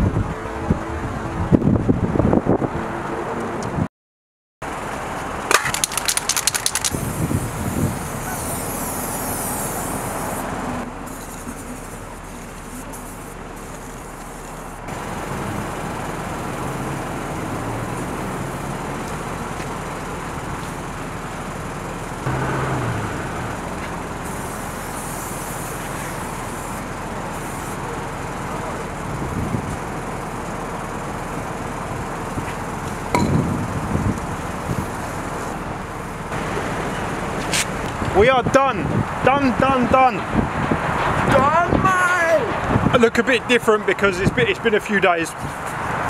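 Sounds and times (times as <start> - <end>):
road traffic passing: 0.0 - 3.9, 4.6 - 46.0
sharp clicks: 5.5 - 7.0.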